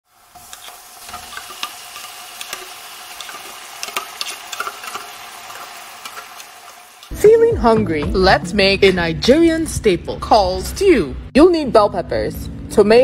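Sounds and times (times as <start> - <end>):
meat and vegetables sizzling on a grill: 0.0 - 7.1.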